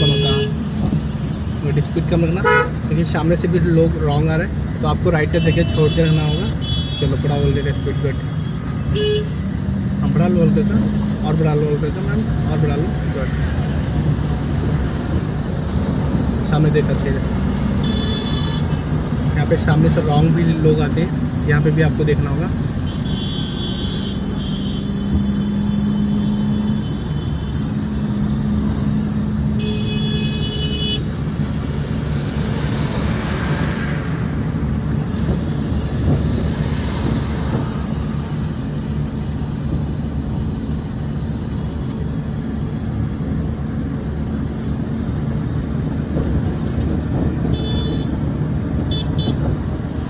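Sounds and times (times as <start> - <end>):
vehicle horns tooting: 0.0 - 0.7, 2.4 - 2.8, 5.4 - 9.4, 17.8 - 18.8, 22.8 - 25.6, 29.6 - 31.1, 47.5 - 48.2, 48.9 - 49.5
passing traffic: 0.0 - 50.0
road rumble: 0.0 - 50.0.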